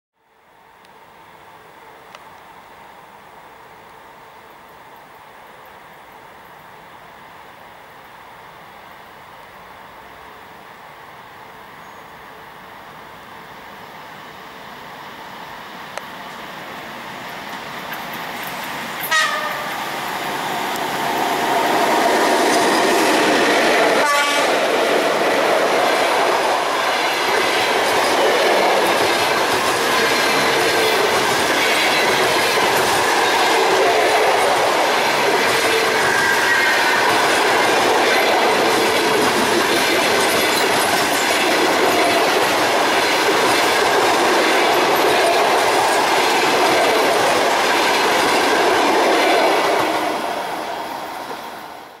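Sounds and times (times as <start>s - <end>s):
train wheels rumbling and clattering: 17.2s - 51.5s.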